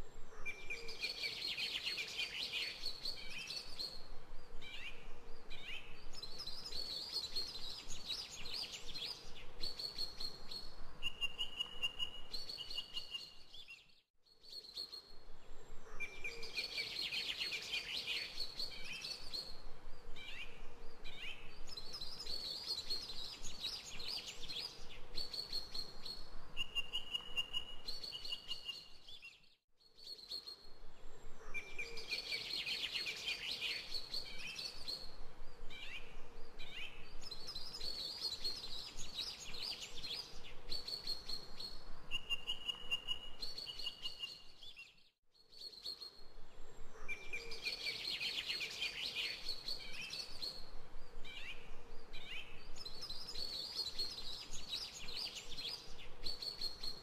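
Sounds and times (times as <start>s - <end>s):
birds chirping and trilling: 0.3s - 57.0s.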